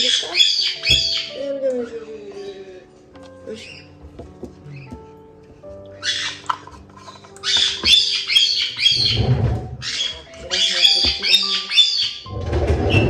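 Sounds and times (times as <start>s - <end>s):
parrots squawking harshly: 0.0s - 1.4s, 6.0s - 6.6s, 7.4s - 9.2s, 9.8s - 12.3s.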